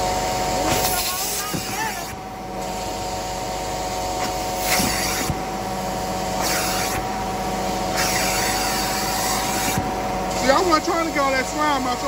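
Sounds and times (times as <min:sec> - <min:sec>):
carpet cleaning machine whining: 0:00.0 - 0:12.0
spraying hiss: 0:04.6 - 0:05.4, 0:06.4 - 0:07.0.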